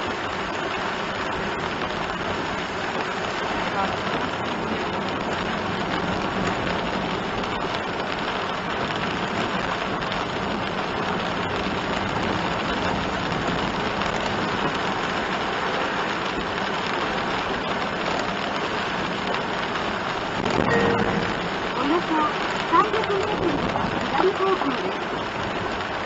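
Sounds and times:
heavy rain on car roof: 0.0s - 26.0s
tyres on wet road: 0.0s - 26.0s.

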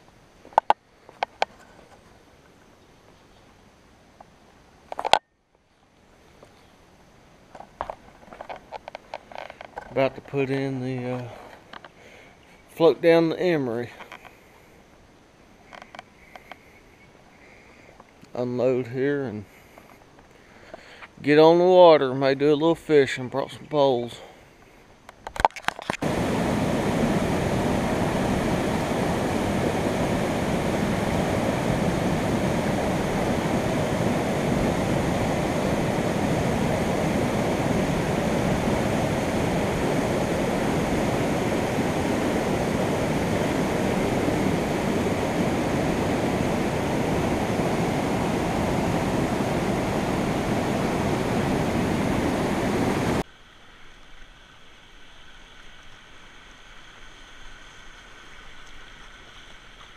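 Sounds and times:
water moving around kayak: 25.4s - 59.9s
river rapid rushing: 26.0s - 53.2s.

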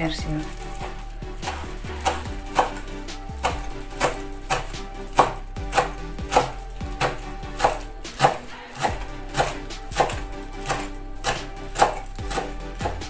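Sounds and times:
background music: 0.0s - 13.0s
knife chopping on wooden board: 0.4s - 13.0s.

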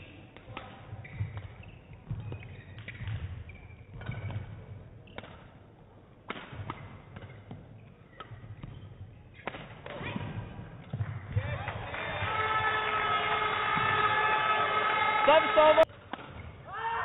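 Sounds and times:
rackets striking shuttlecock: 0.4s - 5.6s, 6.2s - 11.4s, 15.8s - 16.6s
shoes squeaking on court: 0.6s - 11.3s.

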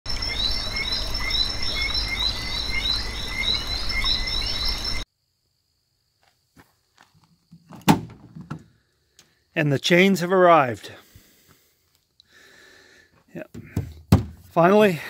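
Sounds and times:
frogs chirping: 0.1s - 5.1s
insect trill: 0.1s - 10.7s.

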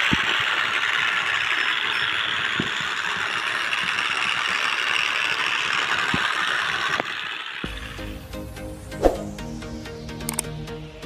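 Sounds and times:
small geared motor whirring: 0.0s - 8.0s.

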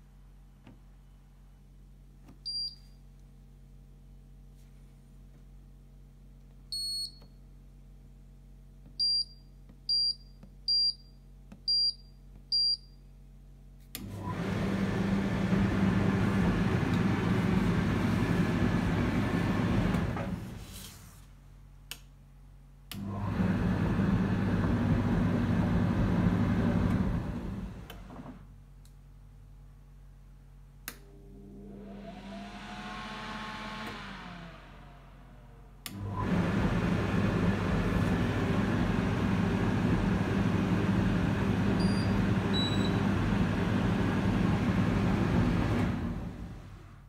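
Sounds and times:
dryer motor running: 14.0s - 20.7s, 23.0s - 28.4s, 31.0s - 47.0s.

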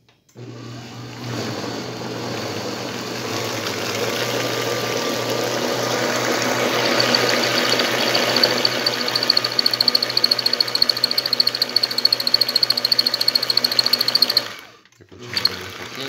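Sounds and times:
mixer motor humming: 0.4s - 16.0s
high pulsing whine: 6.6s - 14.4s.

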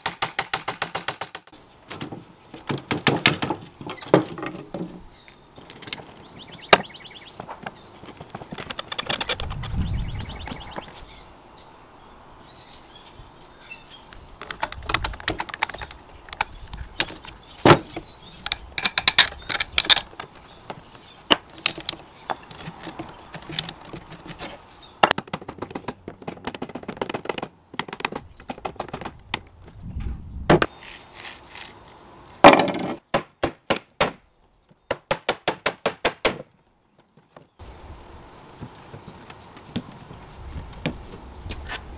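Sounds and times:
wooden chair joints creaking: 7.6s - 9.8s, 14.4s - 20.4s.

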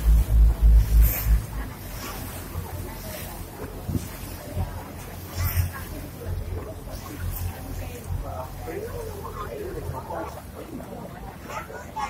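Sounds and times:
wind buffeting microphone: 0.0s - 9.1s
boat and water rumble: 0.0s - 12.0s.

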